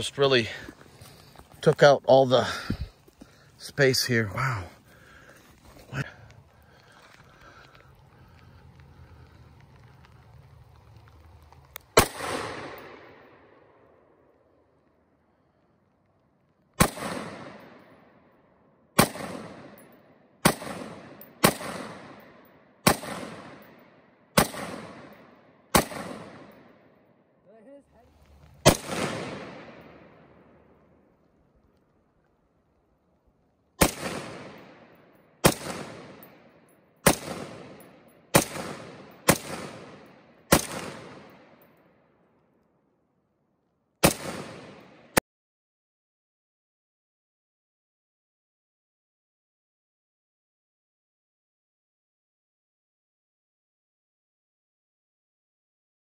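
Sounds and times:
gunshots with long echo: 0:12.0 - 0:14.6, 0:16.8 - 0:27.4, 0:28.6 - 0:31.2, 0:33.8 - 0:42.2, 0:44.0 - 0:45.2.

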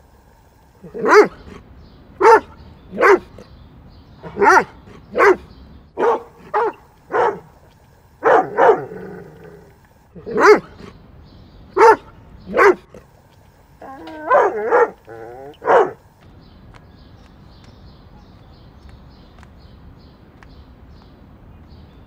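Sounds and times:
dog barking: 0:00.8 - 0:01.6, 0:02.2 - 0:03.4, 0:04.2 - 0:07.6, 0:08.2 - 0:09.0, 0:10.2 - 0:10.9, 0:11.8 - 0:13.0, 0:13.9 - 0:16.0
dog whining: 0:13.8 - 0:16.0.

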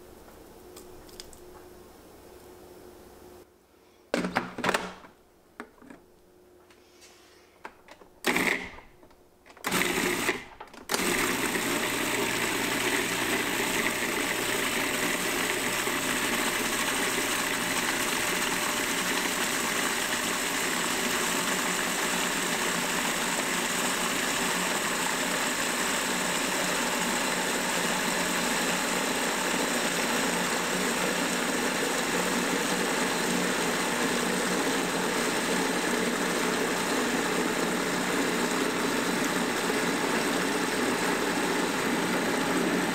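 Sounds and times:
food processor motor running: 0:08.3 - 0:08.6, 0:09.7 - 0:42.9.

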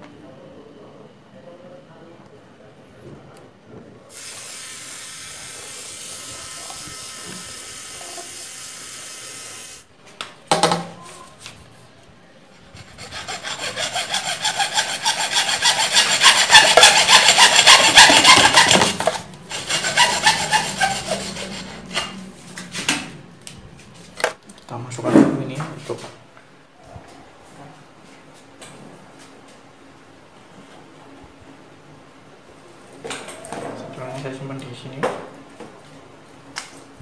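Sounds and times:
steady hiss: 0:04.1 - 0:09.9
hacksaw cutting plastic pipe: 0:12.8 - 0:22.2.

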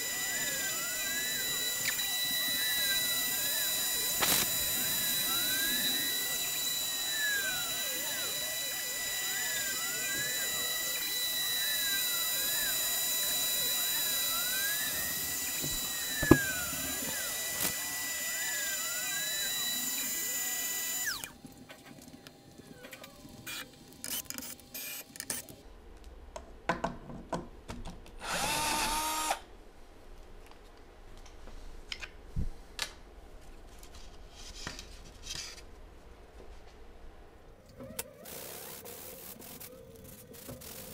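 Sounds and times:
router spindle whining: 0:00.0 - 0:21.4, 0:28.2 - 0:29.4.

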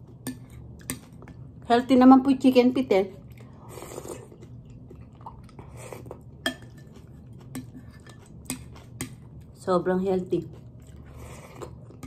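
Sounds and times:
quiet chewing: 0:03.2 - 0:09.6, 0:10.3 - 0:12.0
spoon clinking on glass bowl: 0:06.4 - 0:06.9.

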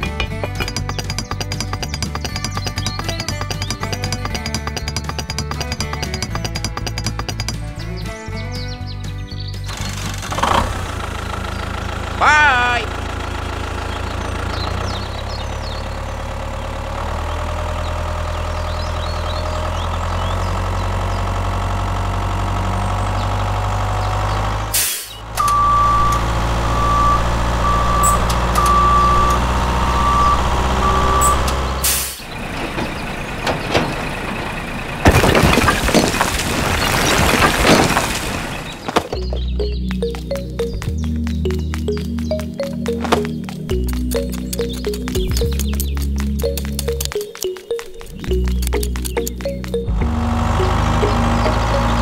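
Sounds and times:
tractor engine rumbling: 0:00.0 - 0:52.0
reversing alarm beeping: 0:25.4 - 0:32.0.

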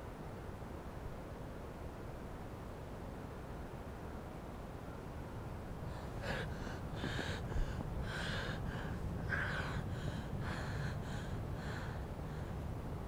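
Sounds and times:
low steady rumble: 0:00.0 - 0:13.0
woman gasping and sobbing: 0:05.9 - 0:12.6.

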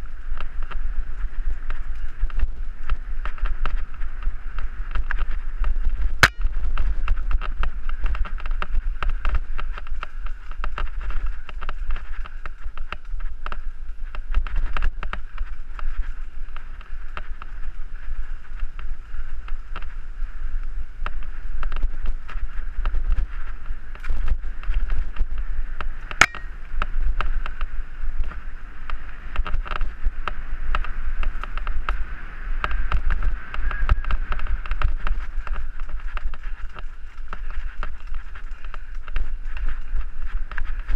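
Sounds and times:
wind rumble on microphone: 0:00.0 - 0:40.9
bike knocks and rattles: 0:01.6 - 0:17.5
sharp click: 0:26.2 - 0:26.5.

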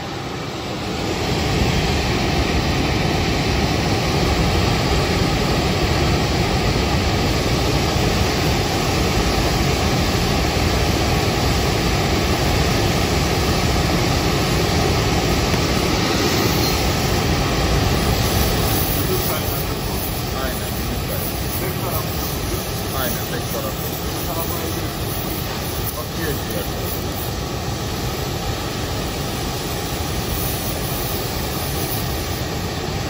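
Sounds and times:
gas torch burning: 0:07.4 - 0:33.0.

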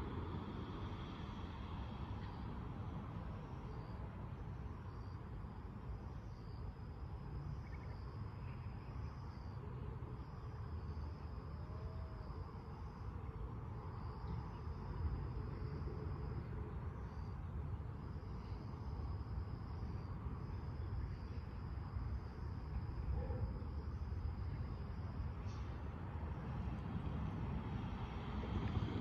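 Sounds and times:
continuous low rumble: 0:00.0 - 0:29.0.

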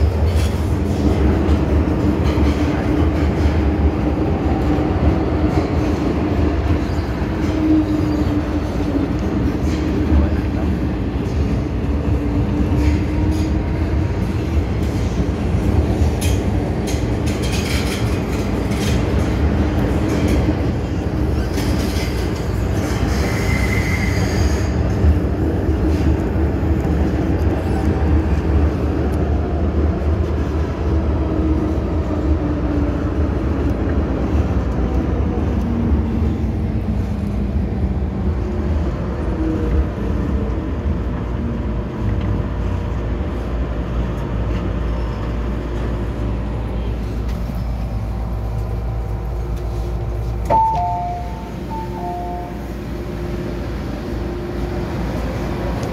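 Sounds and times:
train wheel and track rumble: 0:00.0 - 0:55.9
brief wheel squeal: 0:23.1 - 0:24.7.

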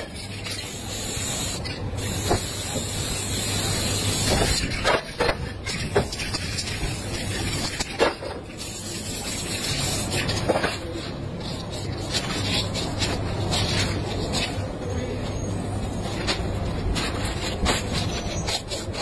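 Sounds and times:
spray paint can hissing: 0:00.0 - 0:10.5.

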